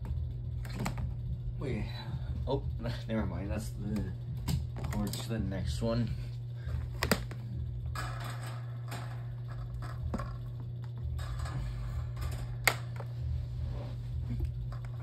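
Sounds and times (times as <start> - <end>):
steady low hum: 0.0 - 15.0
power cord scraping and rattling: 6.9 - 15.0.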